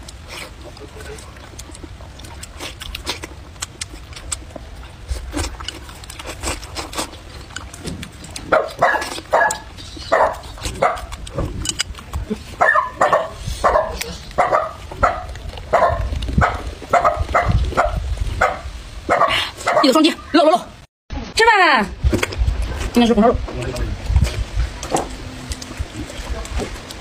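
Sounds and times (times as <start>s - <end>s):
chewing: 0.0s - 19.9s, 23.6s - 27.0s
dog barking: 8.5s - 11.2s, 12.6s - 20.0s.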